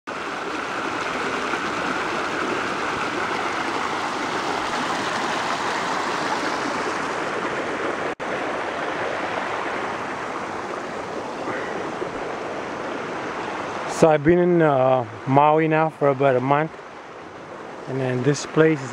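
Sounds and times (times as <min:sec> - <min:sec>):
water rushing over rocks: 0:00.1 - 0:18.9.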